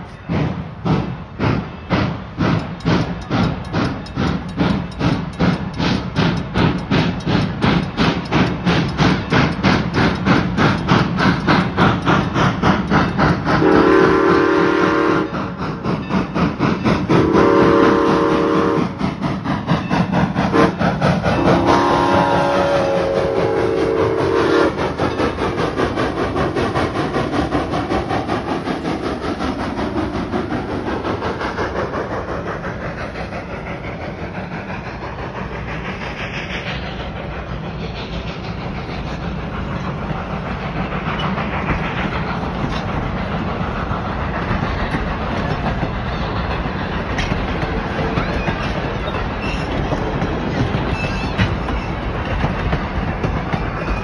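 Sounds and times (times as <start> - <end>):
train rail clatter: 0.0 - 54.0
steam locomotive whistle: 13.5 - 15.4, 17.1 - 19.0, 20.5 - 25.0.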